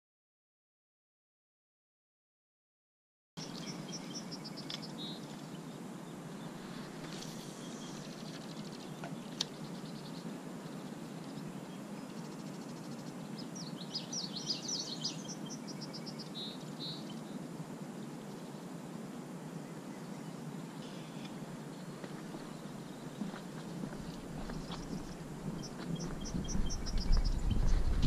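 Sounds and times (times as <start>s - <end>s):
small birds singing: 3.4s - 28.0s
low outdoor rumble: 20.7s - 28.0s.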